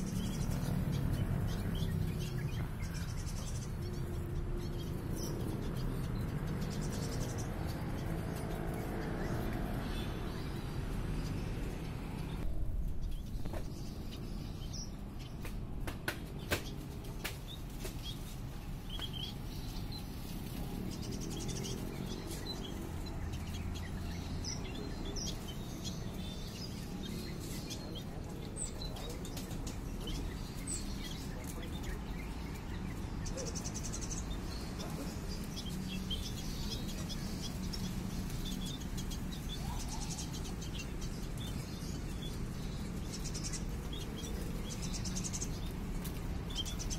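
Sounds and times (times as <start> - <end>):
finches chirping: 0.0 - 12.4, 16.4 - 46.9.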